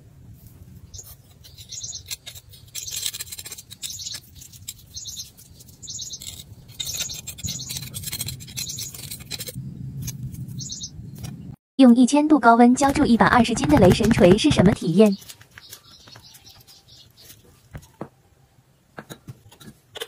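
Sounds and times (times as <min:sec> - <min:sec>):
small birds chirping: 0:00.9 - 0:09.2, 0:10.5 - 0:11.4, 0:13.3 - 0:18.0.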